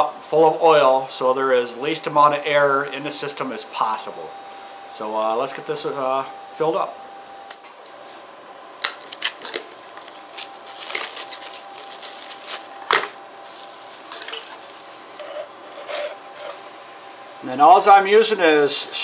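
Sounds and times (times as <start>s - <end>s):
plastic wrap crinkling: 8.8s - 16.6s.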